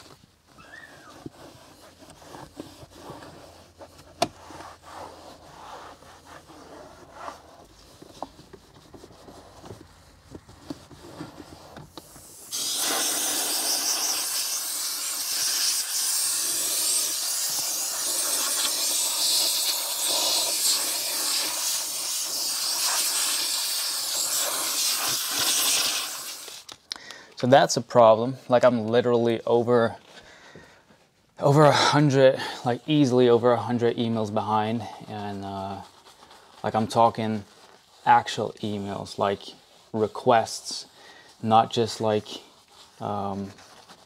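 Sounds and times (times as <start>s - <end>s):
towel and brush rubbing: 0.0s - 26.7s, 33.8s - 44.0s
compressed air blow gun hissing: 12.0s - 26.6s.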